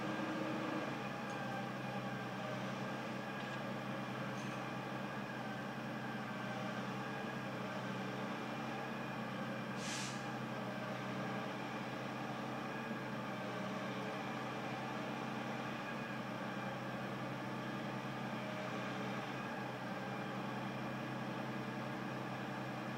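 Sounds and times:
hiss: 0:09.8 - 0:10.3.

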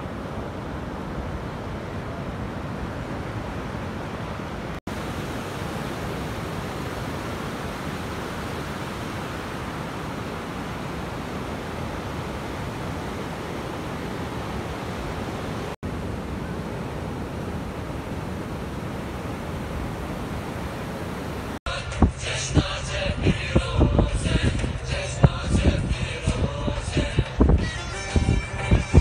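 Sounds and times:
ocean surf breaking: 0:00.0 - 0:21.6.

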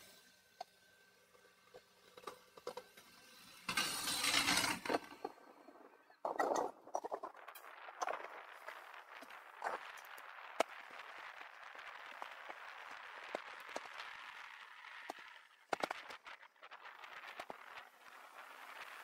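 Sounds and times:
bicycle tyres hissing on road: 0:03.1 - 0:05.0, 0:07.4 - 0:19.0
bicycle clicks and rattles: 0:06.2 - 0:19.0.

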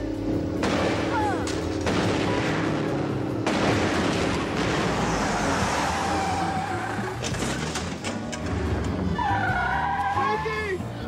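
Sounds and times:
gunshots with noisy rush: 0:00.6 - 0:05.2.

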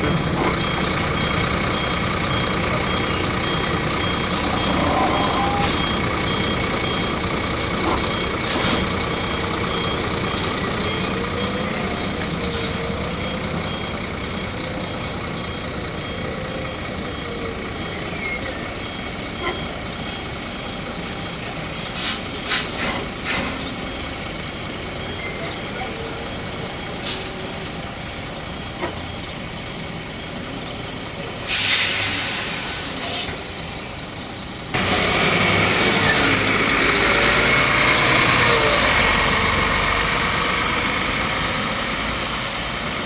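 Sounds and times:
bus engine running: 0:00.0 - 0:43.0
reversing alarm beeping: 0:00.2 - 0:21.8.

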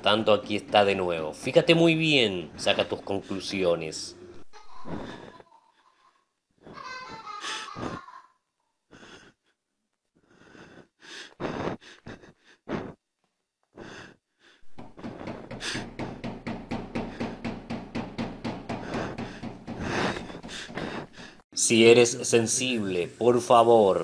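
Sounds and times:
wheezing laugh: 0:04.5 - 0:08.3
short breaths: 0:10.2 - 0:13.0, 0:18.7 - 0:21.4.

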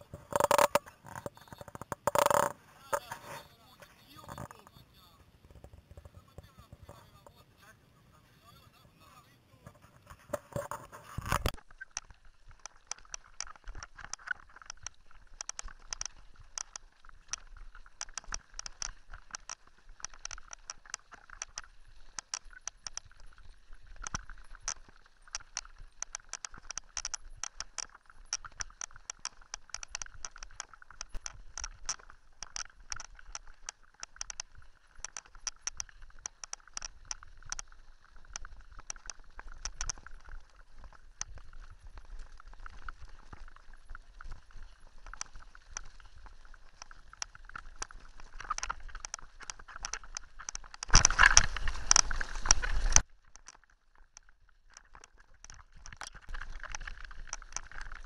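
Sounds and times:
bike rattling over gravel: 0:10.2 - 0:53.1.

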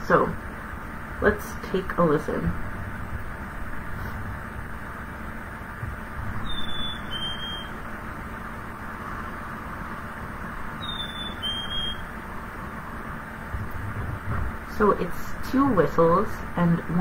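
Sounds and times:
chickadee whistling song: 0:06.4 - 0:07.8, 0:10.8 - 0:12.1.

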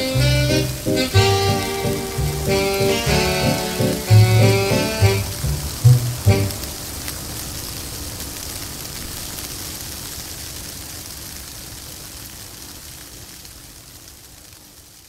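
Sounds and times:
accordion chord: 0:00.0 - 0:06.8
steady hiss: 0:00.0 - 0:15.0.

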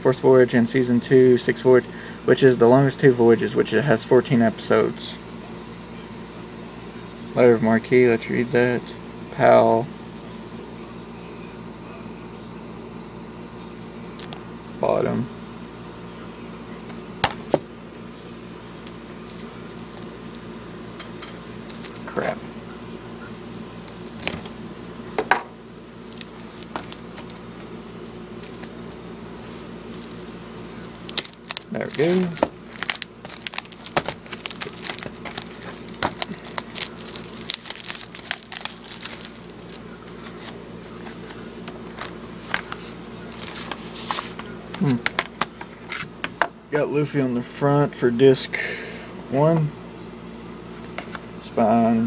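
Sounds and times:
steady low hum: 0:00.0 - 0:52.0
plastic shrink-wrap crinkling: 0:18.3 - 0:20.4, 0:21.6 - 0:22.2, 0:23.4 - 0:24.5, 0:26.0 - 0:27.7, 0:28.4 - 0:29.0, 0:29.6 - 0:30.4, 0:31.0 - 0:41.3.

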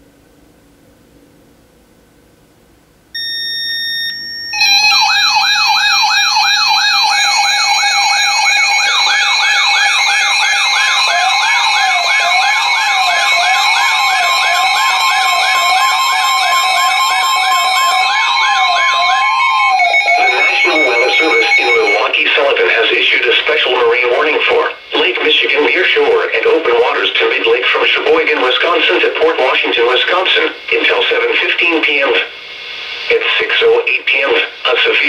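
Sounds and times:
short steady beep: 0:03.2 - 0:04.9, 0:12.3 - 0:22.1
warbling siren-like alarm tones: 0:03.2 - 0:22.2
steady alarm tone: 0:03.2 - 0:32.0
slow up-and-down wail: 0:04.6 - 0:22.0.

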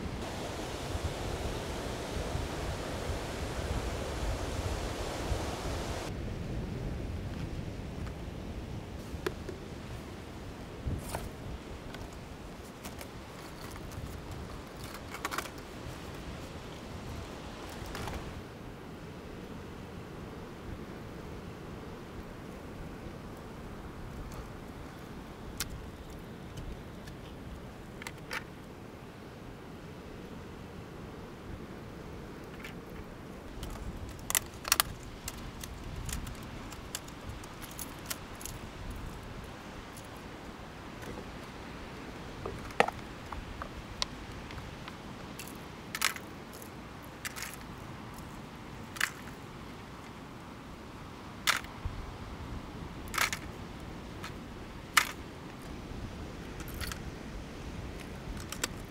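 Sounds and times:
sea: 0:00.0 - 0:58.9
wind: 0:00.0 - 0:58.9
fishing tackle clicks and rustles: 0:11.9 - 0:16.3, 0:32.5 - 0:40.2, 0:42.4 - 0:48.3, 0:48.9 - 0:49.4, 0:53.1 - 0:53.6, 0:54.2 - 0:55.7, 0:56.4 - 0:57.1, 0:57.8 - 0:58.9.

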